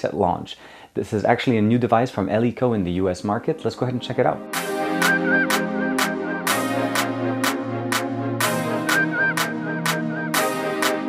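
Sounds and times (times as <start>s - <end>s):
electronic music with steady beat: 3.3s - 11.0s.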